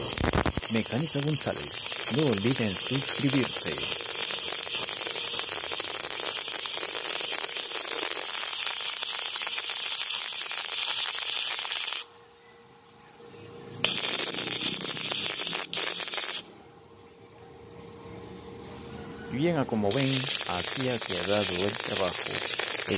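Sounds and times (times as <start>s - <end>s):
arc welding crackling hiss: 0.0s - 12.1s, 13.8s - 16.5s, 19.8s - 22.9s.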